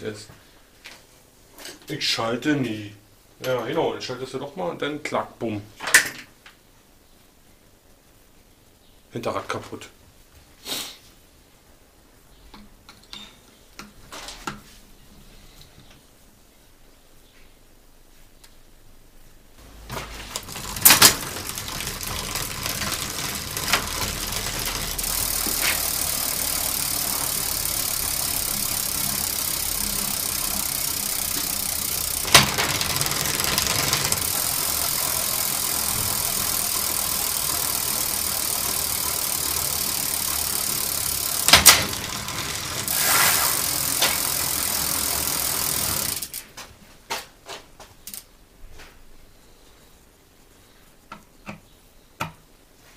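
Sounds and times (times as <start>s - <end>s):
bicycle chain whirring: 19.6s - 46.5s.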